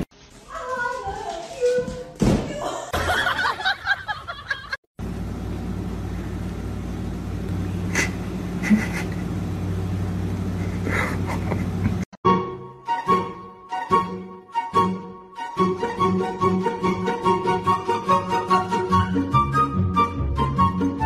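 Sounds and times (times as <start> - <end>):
low mechanical hum: 5.0 - 12.1.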